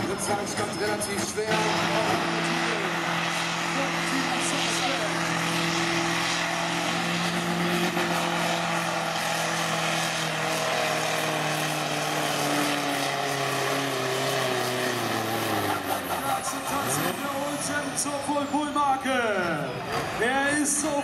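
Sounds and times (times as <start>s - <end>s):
diesel engine under full load: 0.0s - 21.0s.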